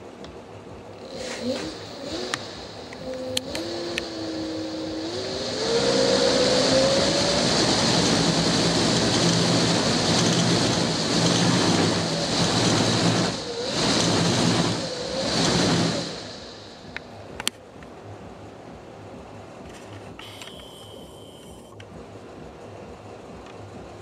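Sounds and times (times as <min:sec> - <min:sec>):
low hum: 0:00.0 - 0:24.0
electric motor whine: 0:01.0 - 0:17.0, 0:20.2 - 0:21.8
rush of air from blades: 0:01.0 - 0:17.5.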